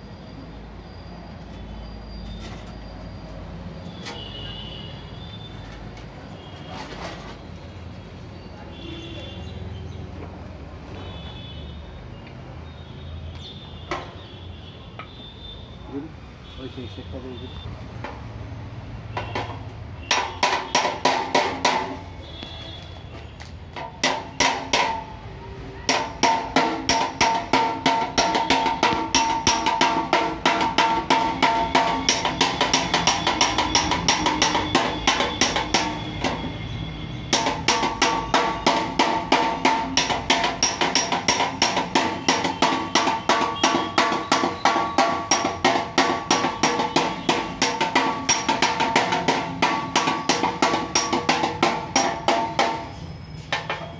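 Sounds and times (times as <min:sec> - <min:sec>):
hammer striking metal: 0:19.2 - 0:22.1, 0:23.8 - 0:25.2, 0:25.9 - 0:36.7, 0:37.3 - 0:53.9.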